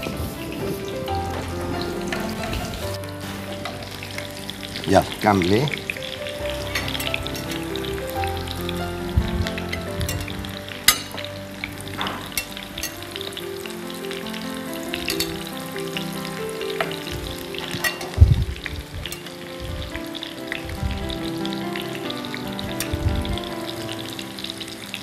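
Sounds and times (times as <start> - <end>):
chicken frying in oil: 0.0 - 25.0
metal tongs clicking: 15.1 - 15.4, 17.8 - 18.2.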